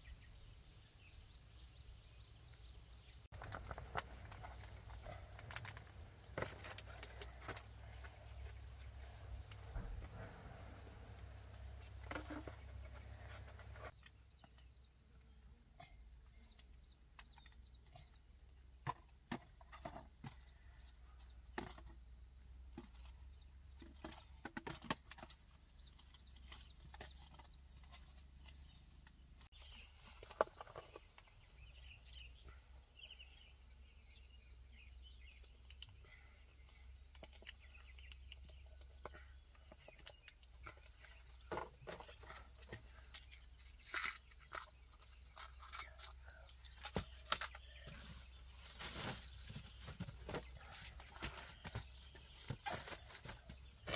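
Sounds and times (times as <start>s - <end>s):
plastic bottles clicking and crinkling: 3.3s - 8.6s, 18.8s - 28.7s, 37.0s - 53.9s.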